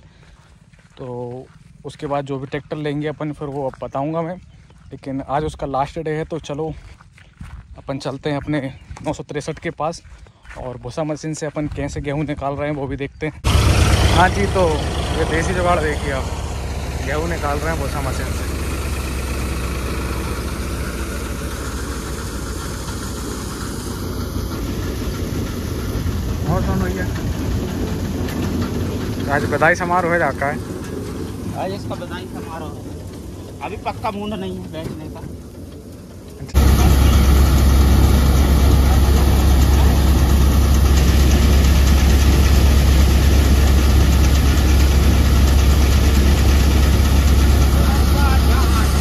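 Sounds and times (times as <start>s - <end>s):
tractor diesel engine running: 13.3s - 49.0s
threshing machine running: 13.4s - 49.0s.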